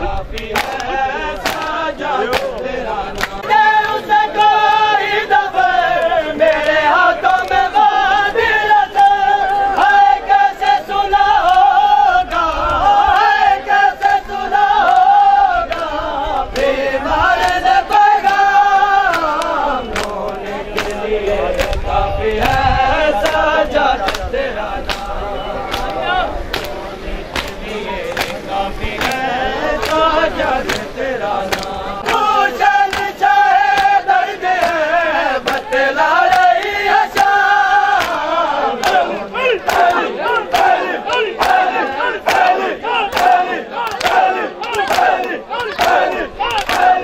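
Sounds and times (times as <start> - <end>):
crowd: 0.0 - 47.0
men chanting a lament: 0.0 - 47.0
hands slapping bare chests: 0.3 - 3.5, 19.1 - 22.6, 24.0 - 47.0.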